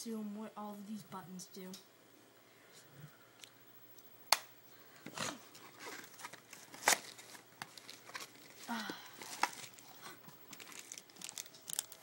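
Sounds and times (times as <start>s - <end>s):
paper and plastic rustling: 5.0s - 12.0s.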